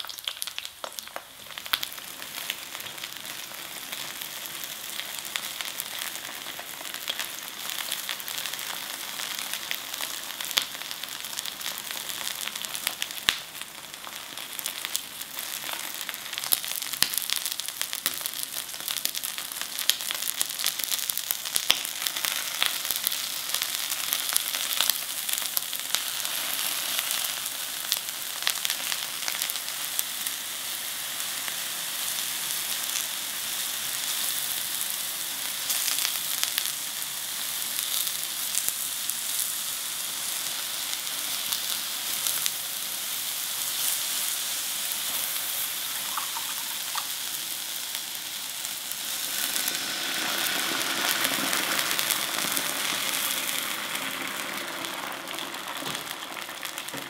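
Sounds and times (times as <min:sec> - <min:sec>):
eggplant sizzling in frying pan: 0:00.0 - 0:57.0
liquid poured into hot pan: 0:43.1 - 0:57.0.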